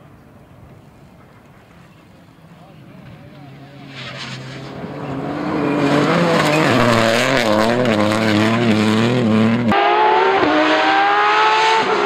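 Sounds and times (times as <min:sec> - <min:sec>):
rally car accelerating in distance: 0:03.0 - 0:12.0
rally car engine revving: 0:03.0 - 0:12.0.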